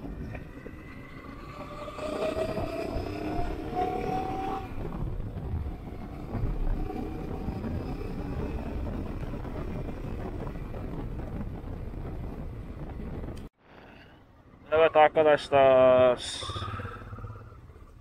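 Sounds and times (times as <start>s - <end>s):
motorcycle engine: 0.0s - 13.5s, 14.4s - 18.0s
road and wind noise: 0.0s - 18.0s.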